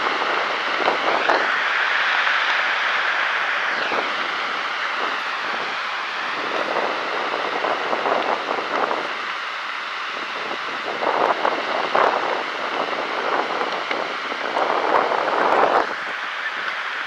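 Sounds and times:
steady rushing noise: 0.0 - 17.0.

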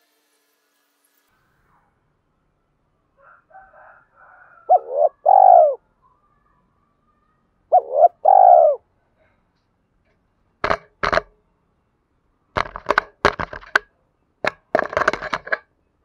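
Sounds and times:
dove cooing: 4.5 - 5.8, 7.7 - 8.8.

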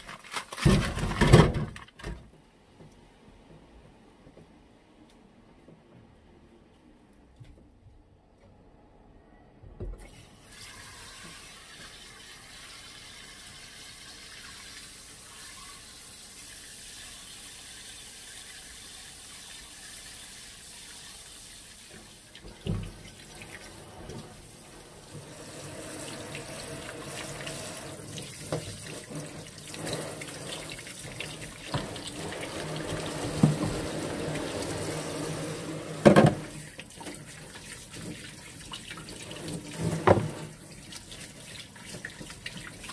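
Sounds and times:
tap water running into sink: 10.0 - 42.9
knocks of things in sink: 36.0 - 36.5.

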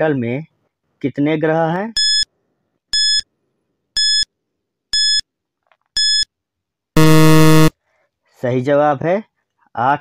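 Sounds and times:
short electronic timer beeps: 4.0 - 4.3, 5.0 - 5.2, 6.0 - 6.3, 7.0 - 7.7.

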